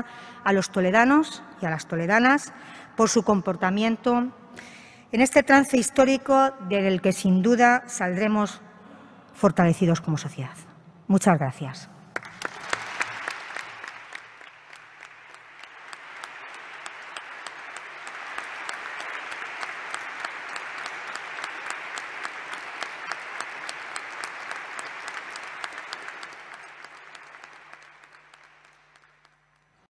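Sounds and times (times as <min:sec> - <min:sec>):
audience clapping: 0:12.1 - 0:29.8.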